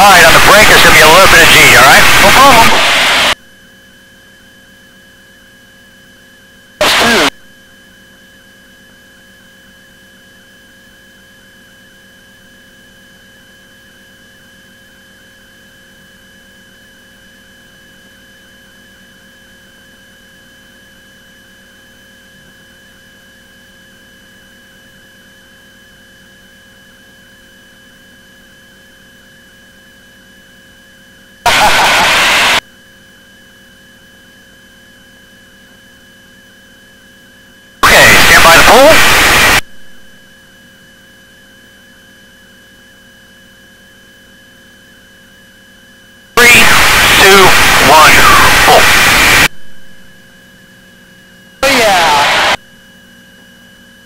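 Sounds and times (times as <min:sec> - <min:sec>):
loud bursts of noise: 0:00.0 - 0:03.4, 0:06.8 - 0:07.3, 0:31.5 - 0:32.6, 0:37.8 - 0:39.6, 0:46.4 - 0:49.5, 0:51.6 - 0:52.6
electrical hum with high whine: 0:00.0 - 0:54.0.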